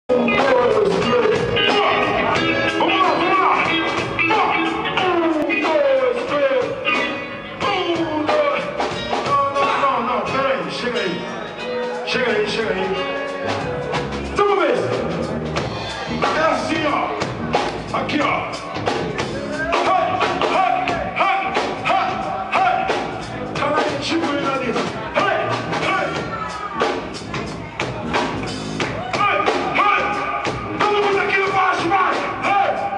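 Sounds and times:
person singing: 0.0 - 15.0
reggae band playing live: 0.0 - 32.9
drum hits: 15.2 - 32.9.

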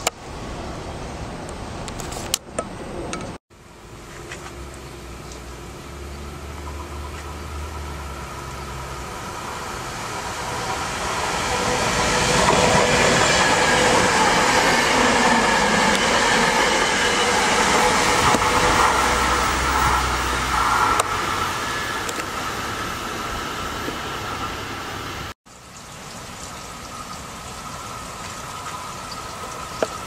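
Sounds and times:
train wheels rumbling on rail: 0.0 - 30.0
train whining tones: 3.8 - 25.4, 26.6 - 30.0.

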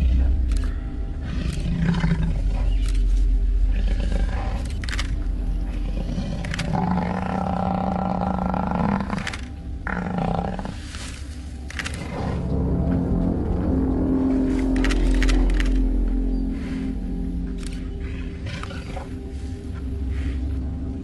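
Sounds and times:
lions growling: 0.0 - 21.0
sharp clicks: 4.6 - 5.3, 6.3 - 6.8, 14.6 - 16.0.

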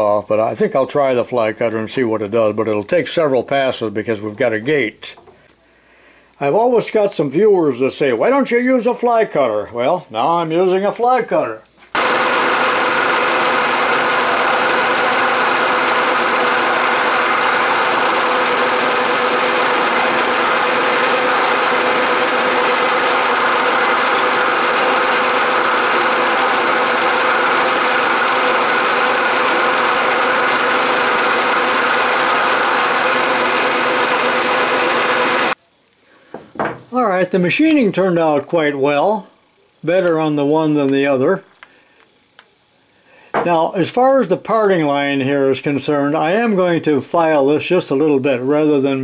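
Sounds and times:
milling machine cutting metal: 12.0 - 35.6.

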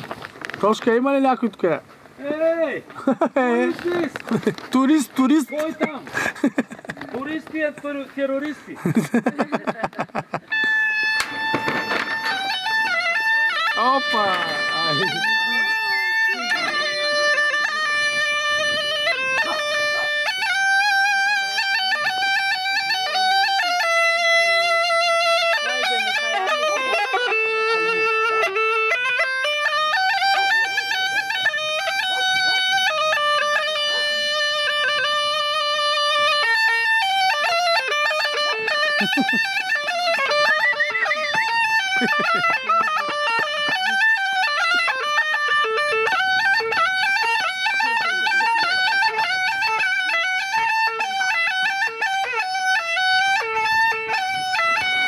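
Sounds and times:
bagpipe playing folk melody: 3.4 - 55.0.

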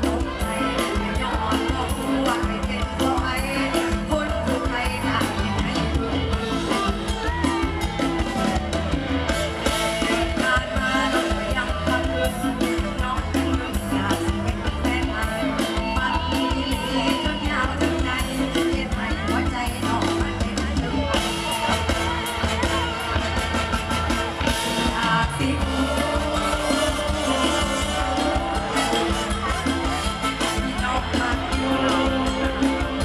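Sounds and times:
woman singing into microphone: 0.0 - 7.9, 10.0 - 21.4, 24.7 - 28.9, 30.4 - 33.0
drum kit beat: 0.0 - 33.0
guitars playing: 0.0 - 33.0.

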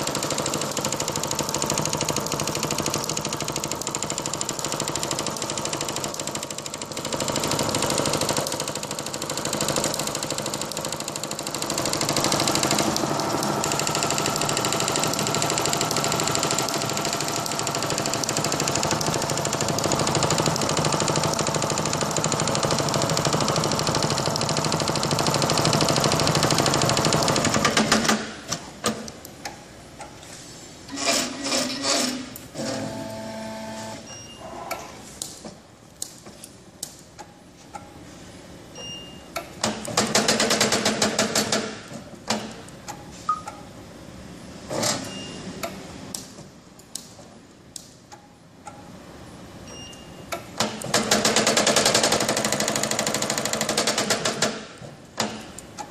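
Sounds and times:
machine running rhythmically: 0.0 - 27.8
scattered clicks: 45.6 - 48.9.

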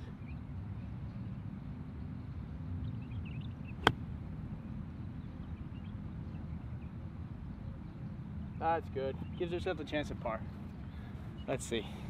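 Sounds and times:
golf club striking ball: 3.8 - 4.0.

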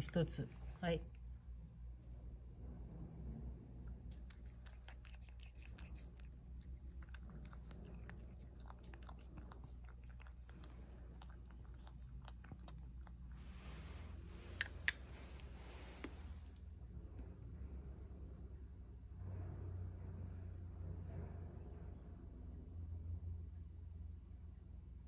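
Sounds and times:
cat crunching dry kibble: 4.1 - 15.6.

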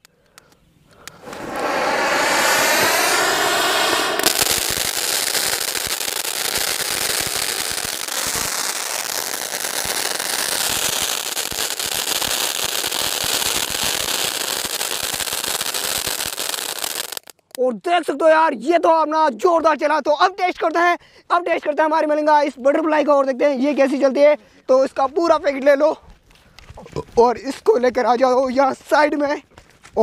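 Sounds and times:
firework sparks hissing and crackling: 0.9 - 17.6.

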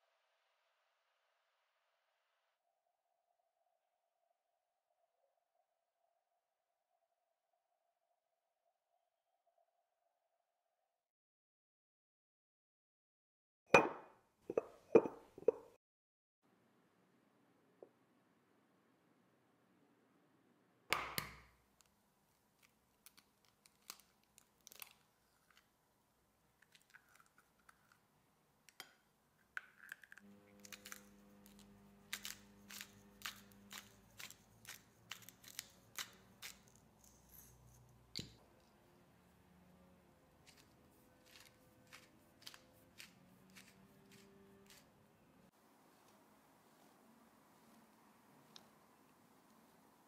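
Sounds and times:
pepper grinder crunching: 22.6 - 25.6, 29.6 - 38.3, 40.4 - 44.9.

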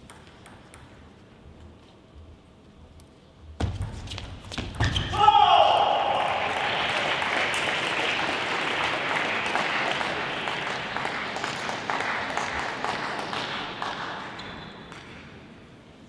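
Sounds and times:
spectators clapping: 6.0 - 14.4.

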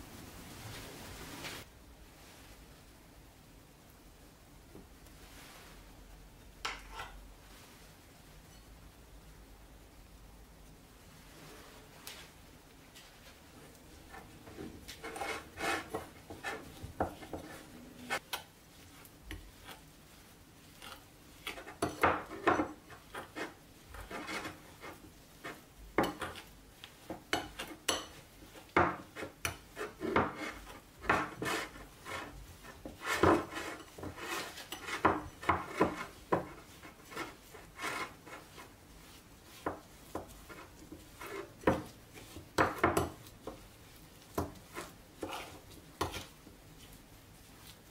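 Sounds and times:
metal spoon scraping ceramic bowl: 6.7 - 7.2, 14.9 - 18.3, 20.7 - 26.5, 29.1 - 38.7.

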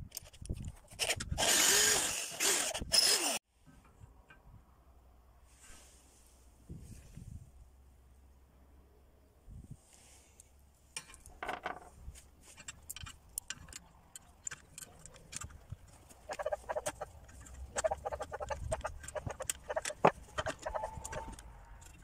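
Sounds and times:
metal parts clinking: 12.5 - 16.5.

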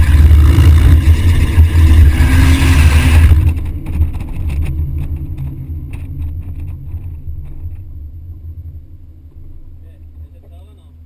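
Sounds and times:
loud rushing noise: 0.0 - 5.1
car engine running hard: 0.0 - 11.0
engine knocks: 3.0 - 8.1.

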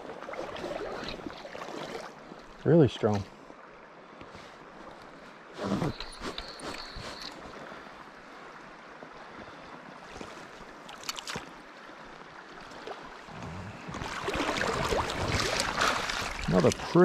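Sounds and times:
flowing river water: 0.0 - 17.0
fish splashing in water: 14.0 - 16.5.

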